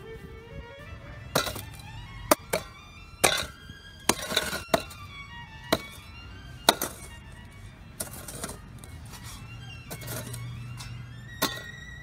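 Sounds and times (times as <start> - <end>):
soft violin music: 0.0 - 12.0
hoe blade chopping into hard soil: 1.3 - 5.0, 5.7 - 7.2, 11.4 - 11.8
loosened earth scraping: 1.3 - 5.1, 5.7 - 11.7.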